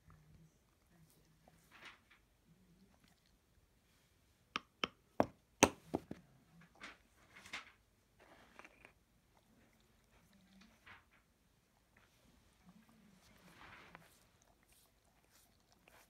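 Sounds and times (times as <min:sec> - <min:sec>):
dog licking: 0:14.0 - 0:16.0.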